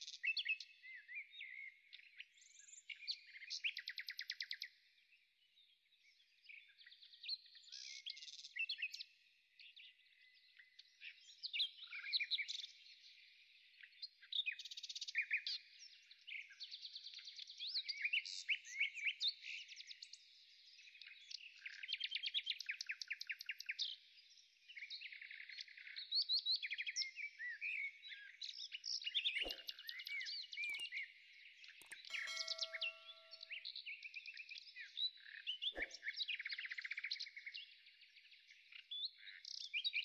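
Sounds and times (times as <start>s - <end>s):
small birds chirping: 0.0s - 40.0s
short ringing chime: 32.0s - 33.5s.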